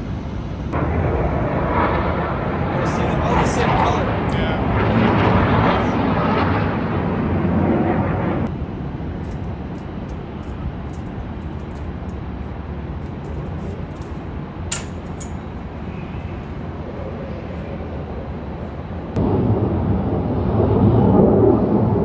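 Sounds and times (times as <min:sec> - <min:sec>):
loud rush of noise: 0:00.0 - 0:08.9, 0:15.8 - 0:22.0
aircraft engine rumble: 0:00.0 - 0:22.0
sharp click: 0:14.7 - 0:15.4.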